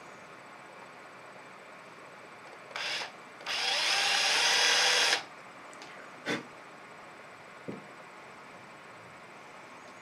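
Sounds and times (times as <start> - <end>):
cordless drill drilling: 2.7 - 5.3.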